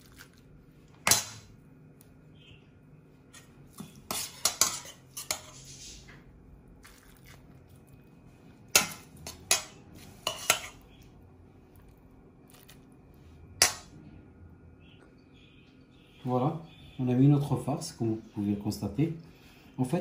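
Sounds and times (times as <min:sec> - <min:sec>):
metal utensils clinking on pan: 0:04.1 - 0:05.5, 0:08.7 - 0:10.8.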